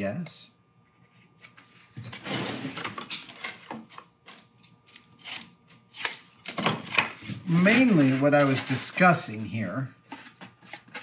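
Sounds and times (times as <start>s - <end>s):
scraping and rubbing of foamcore: 7.2s - 9.1s.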